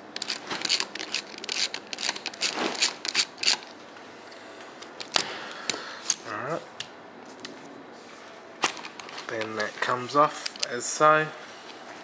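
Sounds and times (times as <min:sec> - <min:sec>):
ratcheting screwdriver clicking: 0:00.2 - 0:03.6.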